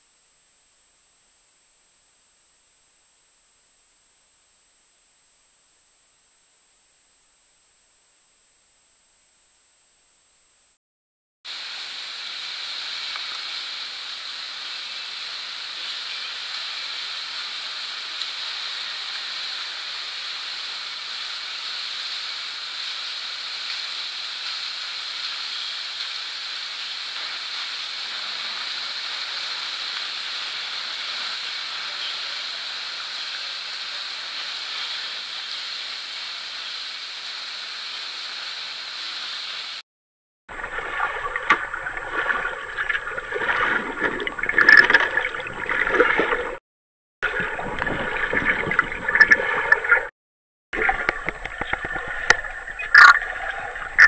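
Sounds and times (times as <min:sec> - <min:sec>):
swimmers splashing water: 0:40.5 - 0:46.6, 0:47.2 - 0:50.1.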